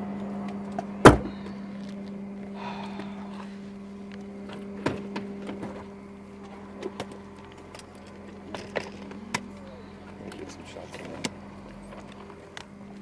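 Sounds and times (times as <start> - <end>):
car engine idling: 0.0 - 13.0.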